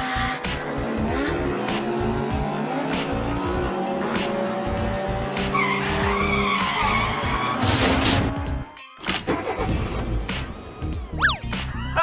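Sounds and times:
background music: 0:00.0 - 0:12.0
cartoon tire screech: 0:05.5 - 0:08.2.

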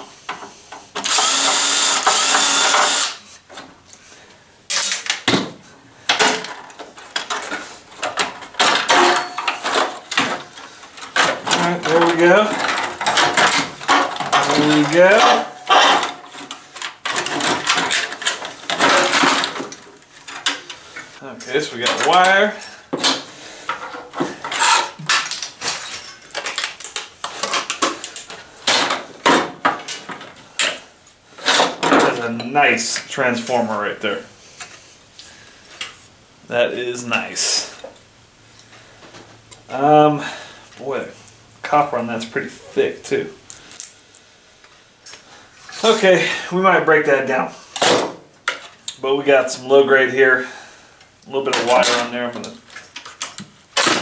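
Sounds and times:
cordless drill running: 0:01.0 - 0:03.2.

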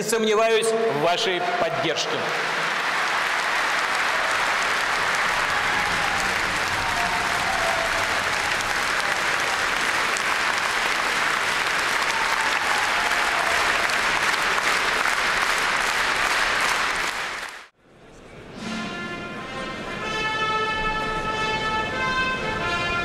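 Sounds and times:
audience applause: 0:01.3 - 0:17.7.

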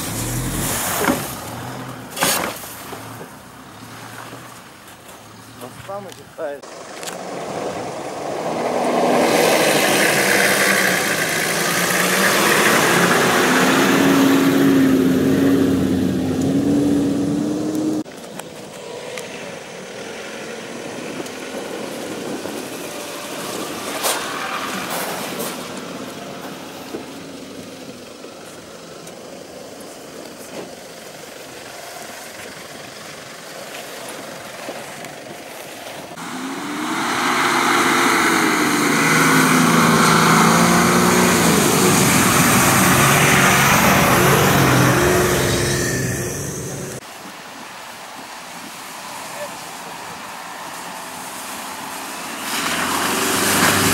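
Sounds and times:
off-road engines revving: 0:00.0 - 0:18.1, 0:36.1 - 0:47.0, 0:51.4 - 0:53.9
wind noise on microphone: 0:20.7 - 0:25.4.

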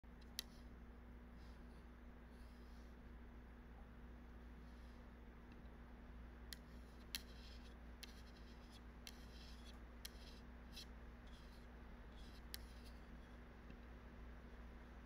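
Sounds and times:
low electrical hum: 0:00.0 - 0:15.0
computer mouse clicks: 0:06.5 - 0:10.4.

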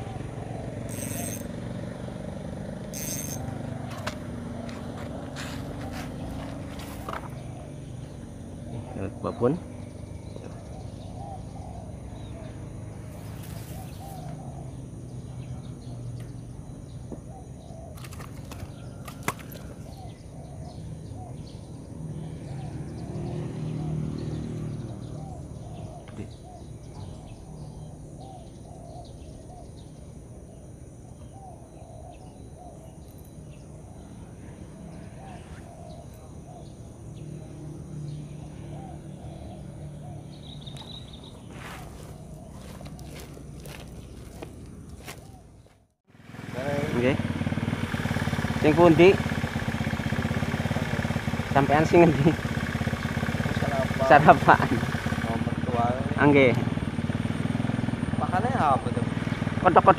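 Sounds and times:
short chirping calls: 0:00.0 - 0:02.0, 0:02.7 - 0:19.0, 0:24.0 - 0:45.8.

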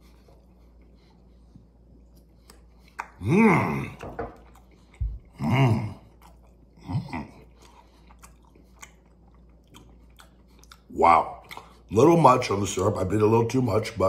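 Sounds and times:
man chewing food: 0:00.0 - 0:12.1
wet mouth clicks: 0:02.5 - 0:03.3, 0:09.7 - 0:11.8
man moaning with full mouth: 0:03.2 - 0:04.0, 0:05.3 - 0:06.1.

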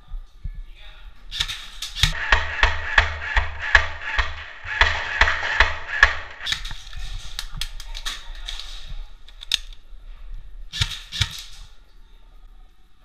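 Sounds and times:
airsoft gun shots: 0:01.3 - 0:06.8, 0:10.7 - 0:11.7.

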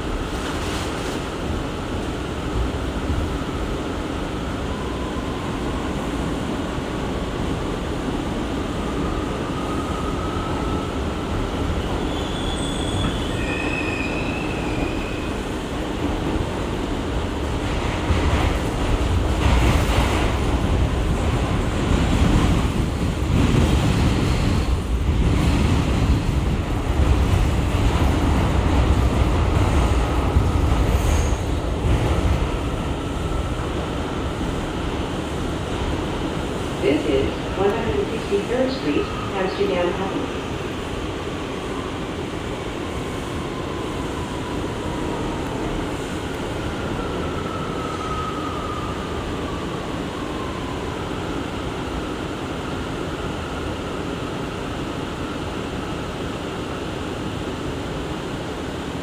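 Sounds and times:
subway wheels rumbling on rail: 0:00.0 - 0:59.0.

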